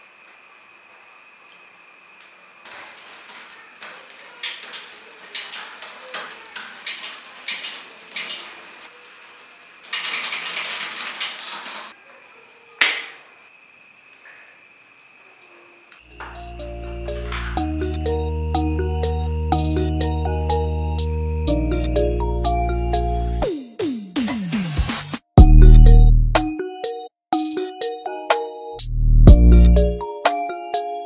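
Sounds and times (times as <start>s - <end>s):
sharp snap: 12.8s - 13.2s.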